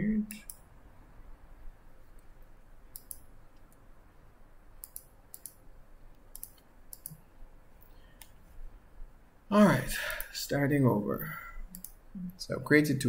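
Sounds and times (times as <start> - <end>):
computer mouse buttons clicking: 2.9 - 3.8, 4.8 - 7.2, 11.7 - 12.0.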